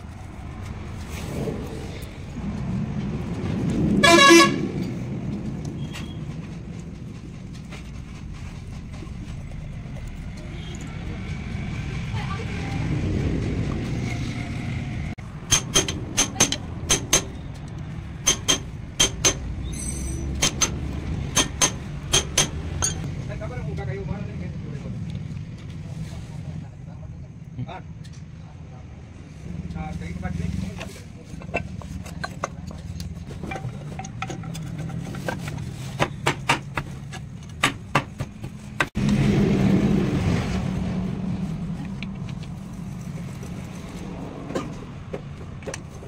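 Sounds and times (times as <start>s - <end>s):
low engine hum: 0.0s - 27.6s.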